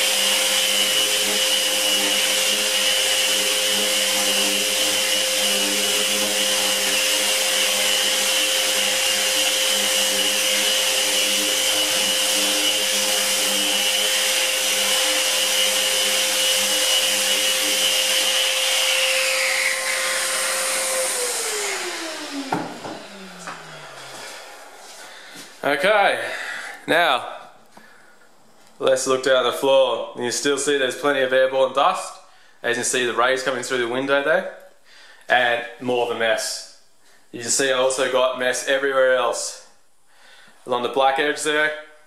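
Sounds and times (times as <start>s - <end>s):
motor whine: 0.0s - 25.0s
orbital sander on plaster: 0.0s - 25.6s.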